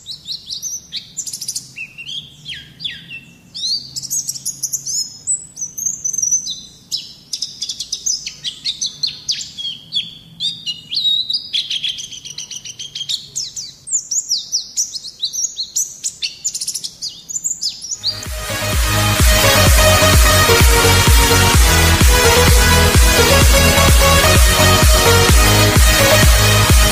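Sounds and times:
bird singing high chirps and trills: 0.0 - 18.2.

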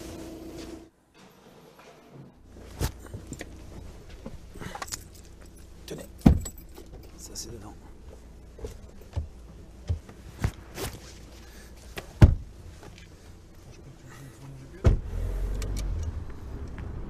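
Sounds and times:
car engine rumble: 2.4 - 17.0
car door thumping shut: 6.2 - 6.6, 12.2 - 12.5, 14.8 - 15.1.

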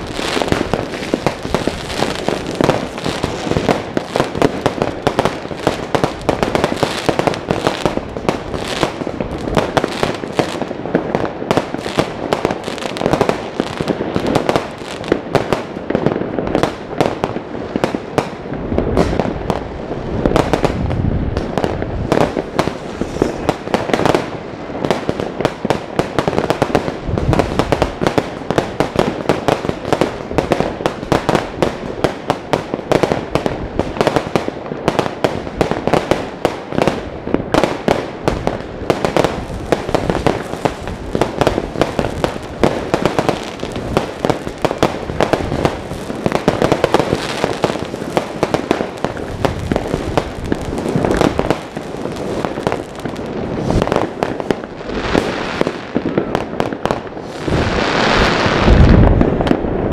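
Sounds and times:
fireworks bangs and crackles: 0.0 - 59.9.

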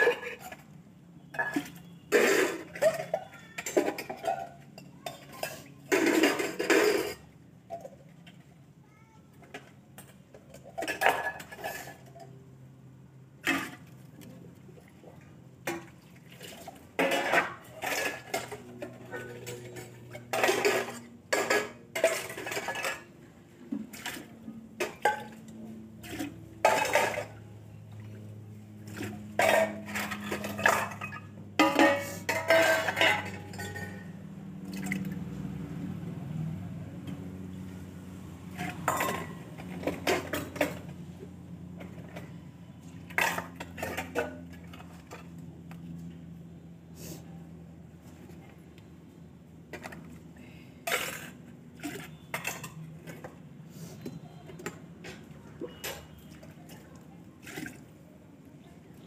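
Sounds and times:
steel utensils clattering: 1.3 - 7.9, 10.4 - 12.4, 16.4 - 23.2, 24.0 - 27.4, 28.7 - 34.2, 38.5 - 40.9, 43.1 - 45.2, 50.8 - 53.3, 54.6 - 56.5
water splashing from bowl: 34.6 - 35.3.

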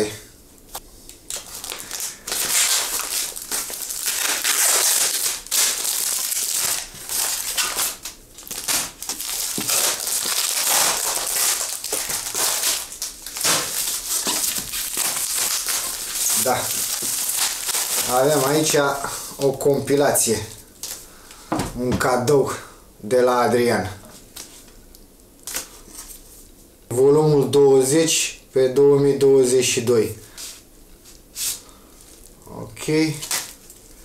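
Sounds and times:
packing material crinkling: 1.1 - 21.0, 31.1 - 34.0.

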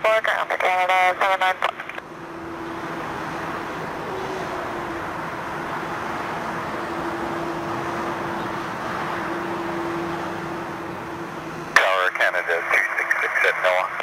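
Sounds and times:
airliner jet engines taxiing: 0.9 - 14.0.

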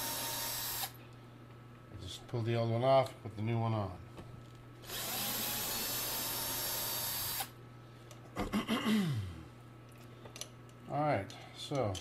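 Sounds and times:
cordless drill running: 0.0 - 1.0, 4.8 - 7.6.

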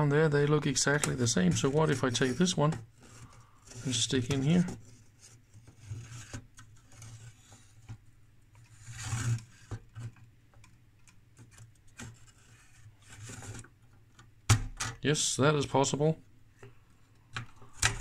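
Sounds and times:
circuit board scraping: 8.7 - 9.7.

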